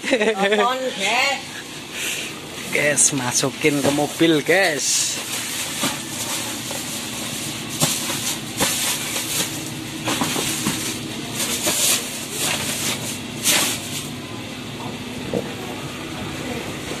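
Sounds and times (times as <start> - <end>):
steady low hum: 0.0 - 17.0
plastic bags rustling: 2.7 - 14.2.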